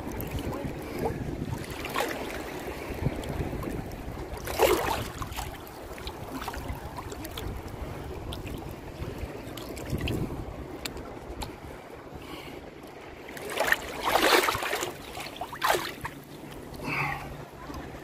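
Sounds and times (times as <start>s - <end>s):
small waves lapping: 0.0s - 18.0s
water splash: 0.1s - 2.5s, 4.4s - 7.4s, 13.3s - 16.2s.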